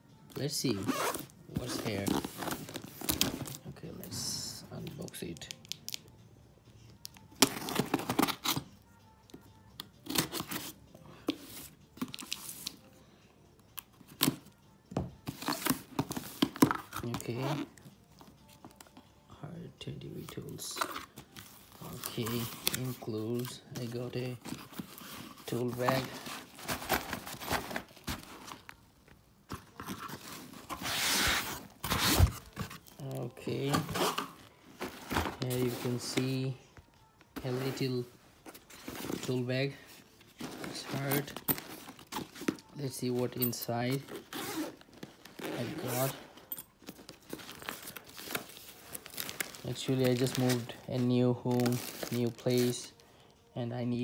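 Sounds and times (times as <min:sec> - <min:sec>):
cardboard tearing and rustling: 0:24.4 - 0:28.7, 0:29.7 - 0:32.9, 0:47.0 - 0:50.7.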